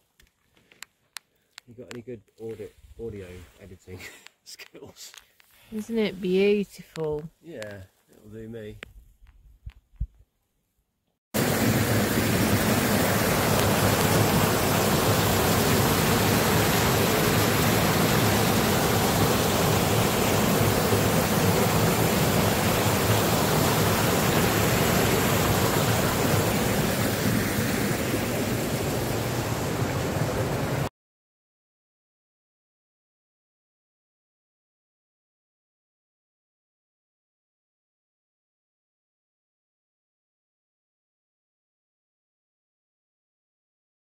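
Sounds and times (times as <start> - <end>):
waterfall pouring over rocks: 11.4 - 30.9.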